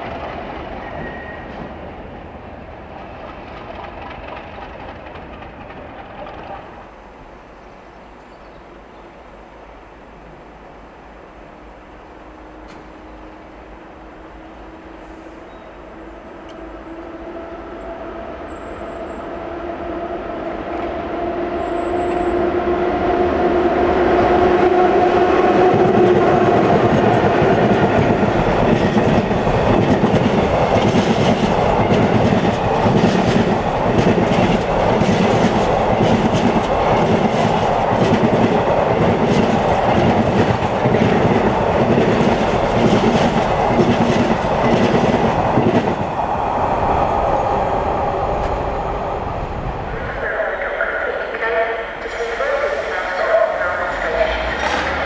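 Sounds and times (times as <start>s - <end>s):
wheels clicking over rail joints: 3.2s - 6.7s
freight wagons rumbling past: 24.3s - 55.0s.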